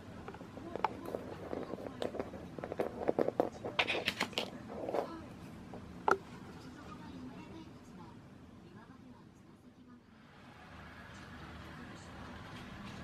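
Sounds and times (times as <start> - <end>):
card clicks and rustles on floor: 0.9 - 5.2.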